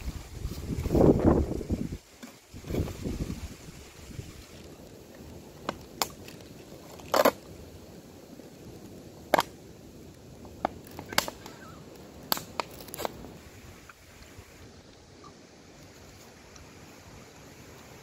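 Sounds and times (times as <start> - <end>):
plastic bottle crackling: 12.3 - 13.2.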